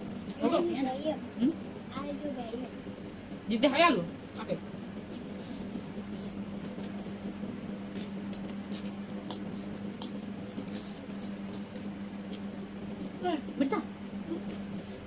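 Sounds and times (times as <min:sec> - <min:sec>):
steady low hum: 0:00.0 - 0:15.0
chewing: 0:07.9 - 0:12.7.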